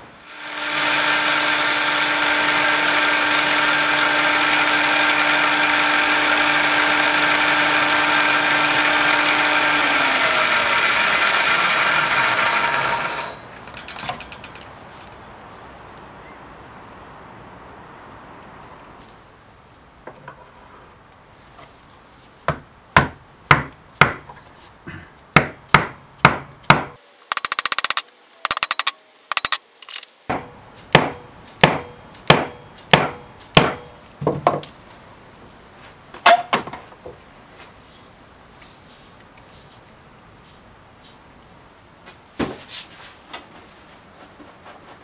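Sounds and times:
sharp wooden knocks: 22.5s - 24.3s, 25.4s - 29.6s, 30.3s - 34.6s.

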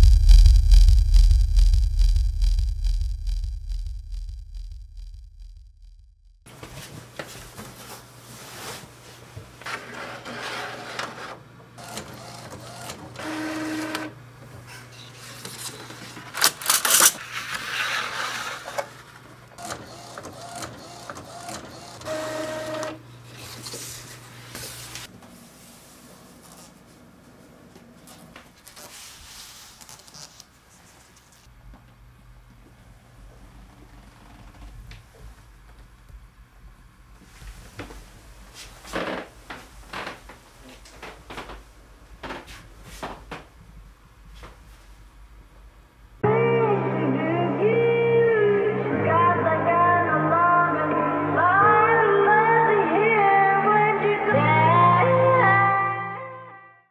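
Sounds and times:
print head whirring and clicking: 11.8s - 14.1s, 19.6s - 23.0s
printer motor hum: 11.8s - 14.1s, 19.6s - 23.0s.

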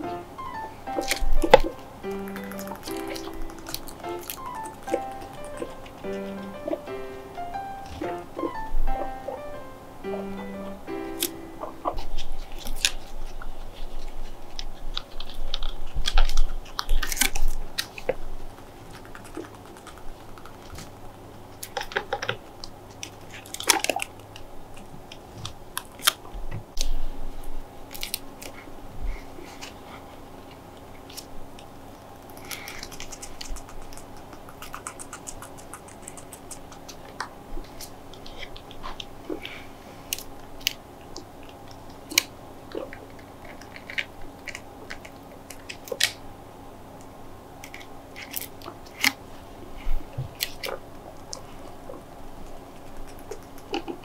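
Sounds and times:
guinea pigs chewing: 0.0s - 54.0s
small clicks and crunches: 30.5s - 46.2s.

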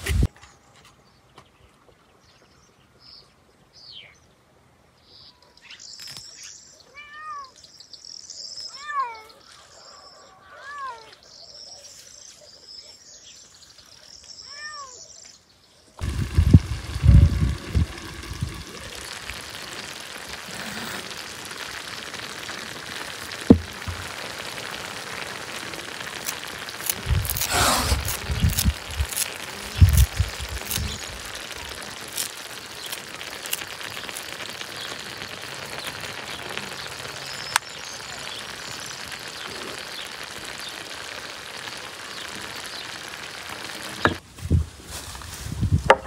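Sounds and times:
steady outdoor hiss: 0.0s - 46.0s
birds chirping: 5.0s - 44.2s
cat meowing: 6.9s - 7.5s
low rumbling bumps: 16.0s - 19.2s.

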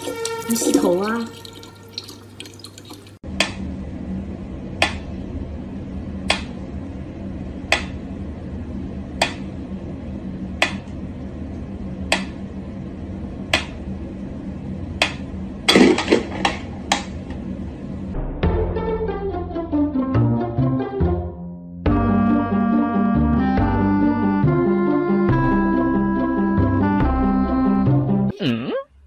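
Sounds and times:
steady low hum: 3.1s - 18.4s.

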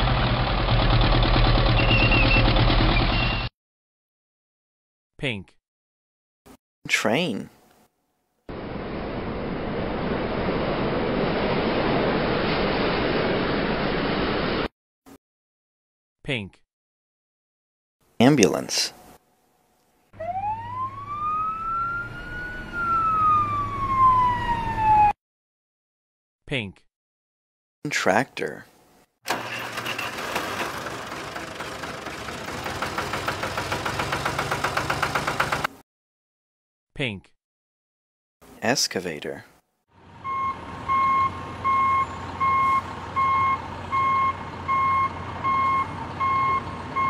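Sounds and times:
ambulance siren wailing: 20.2s - 25.2s
excavator engine noise: 29.3s - 35.8s
reversing alarm beeping: 40.2s - 47.0s.

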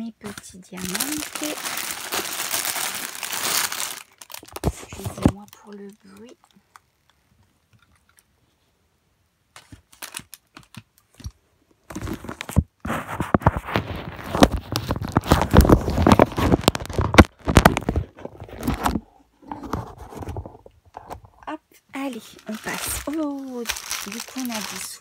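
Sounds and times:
plastic packaging crinkling: 0.0s - 7.2s, 9.5s - 19.0s, 22.0s - 25.0s.

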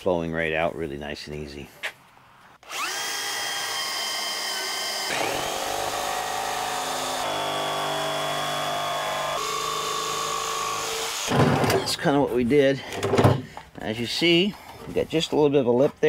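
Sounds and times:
power tool cutting plastic: 2.6s - 11.8s.

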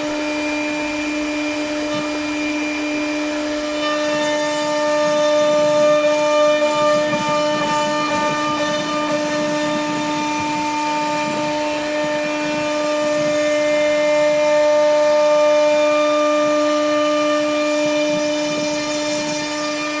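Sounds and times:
bit cutting wood: 0.0s - 20.0s
router spindle whining: 0.0s - 20.0s.

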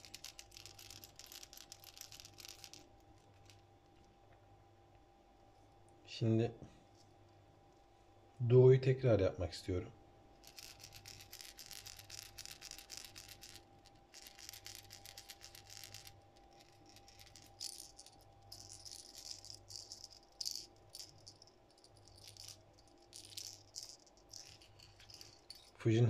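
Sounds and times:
faint lure rattle clicking: 0.0s - 3.6s, 10.4s - 25.8s.

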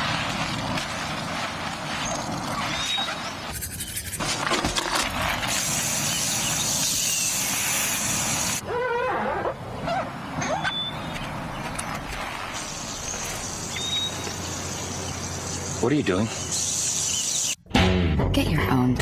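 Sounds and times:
brush scrubbing wet wheel: 0.0s - 6.1s
garden hose spraying water: 0.0s - 8.6s, 11.4s - 17.6s
birds chirping: 1.9s - 4.2s, 5.9s - 17.6s.

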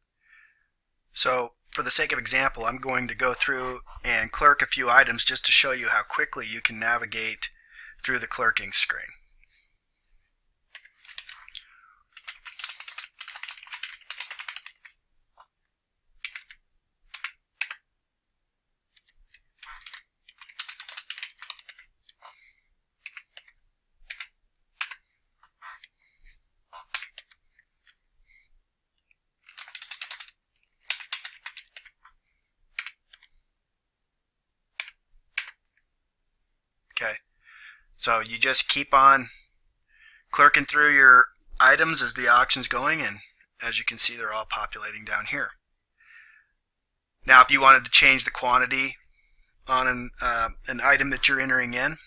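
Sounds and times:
computer keyboard typing: 10.7s - 15.5s, 16.2s - 17.9s, 18.9s - 26.0s, 26.8s - 28.0s, 29.4s - 33.4s, 34.7s - 35.8s.

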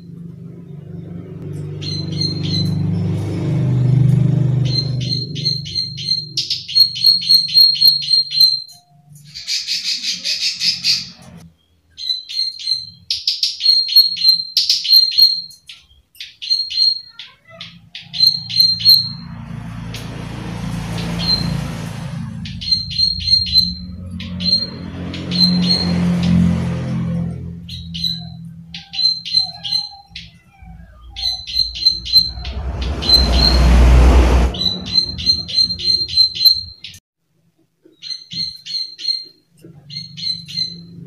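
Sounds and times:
low background rumble: 30.3s - 36.4s.

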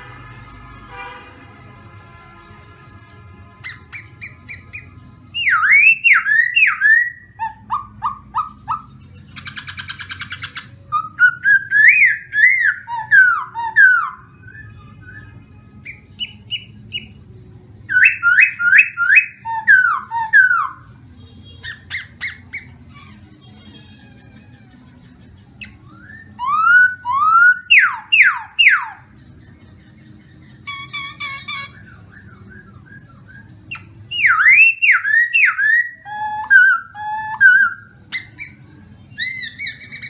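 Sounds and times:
bird whistled song: 3.6s - 40.0s
harsh rattling chatter: 21.8s - 26.5s.

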